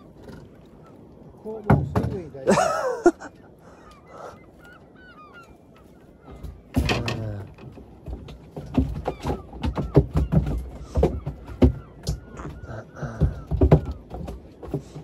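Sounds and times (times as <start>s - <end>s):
gulls calling: 0.0s - 15.0s.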